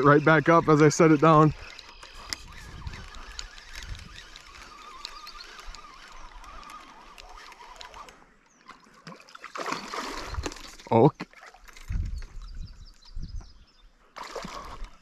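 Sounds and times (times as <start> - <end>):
fishing reel clicks: 0.0 - 8.6
fish splashing in water: 8.7 - 11.7, 14.2 - 15.0.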